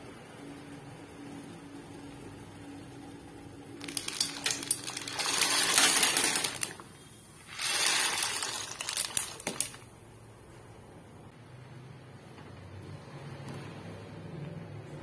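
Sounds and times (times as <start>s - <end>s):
dry pasta clattering into pot: 3.8s - 9.9s.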